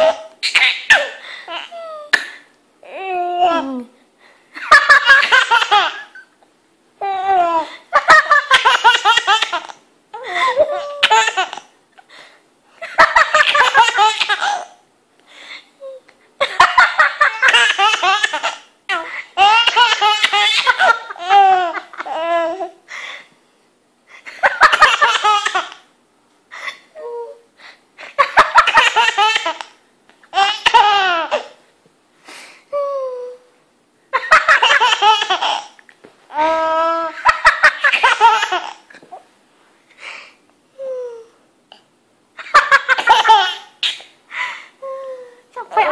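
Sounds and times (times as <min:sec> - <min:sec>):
baby laughing: 0:00.0 - 0:02.3, 0:04.6 - 0:06.3, 0:07.0 - 0:11.7, 0:12.8 - 0:14.8, 0:16.4 - 0:22.8, 0:24.3 - 0:25.9, 0:28.0 - 0:31.6, 0:34.2 - 0:39.3, 0:42.4 - 0:44.0.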